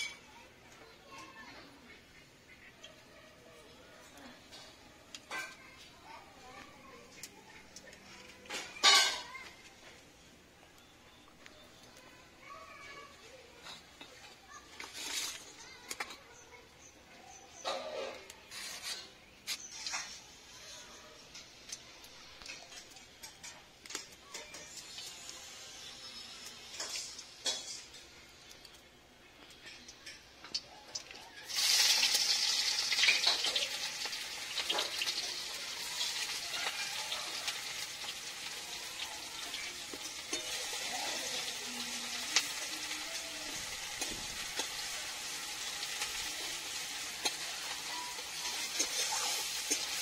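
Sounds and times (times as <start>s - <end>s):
onions sizzling in hot oil: 22.5s - 28.5s, 30.0s - 50.0s
metal spatula clinking on pan: 47.2s - 50.0s.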